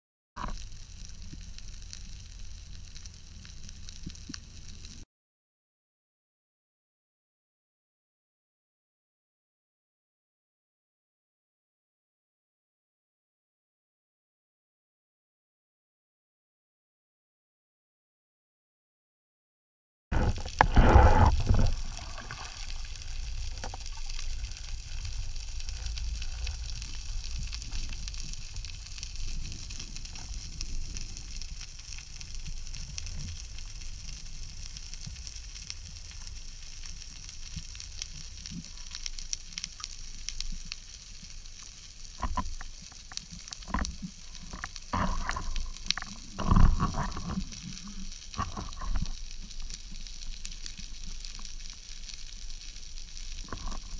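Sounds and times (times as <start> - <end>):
underwater fine crackling: 0.4 - 5.0, 20.1 - 53.9
low rush of water: 20.2 - 28.0.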